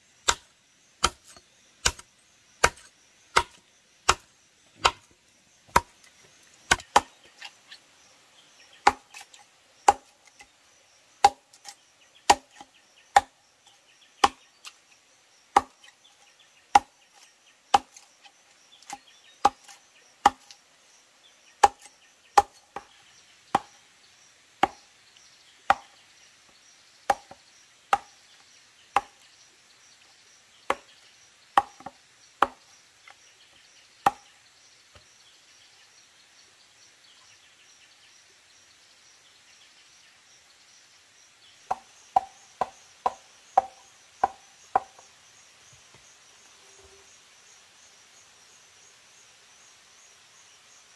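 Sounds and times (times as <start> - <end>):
blade chopping into wood: 0.2 - 5.1, 5.7 - 6.0, 6.7 - 7.3, 8.8 - 10.2, 12.3 - 13.3, 14.2 - 14.5, 17.7 - 18.1, 18.8 - 20.6, 21.6 - 22.9, 31.6 - 32.6.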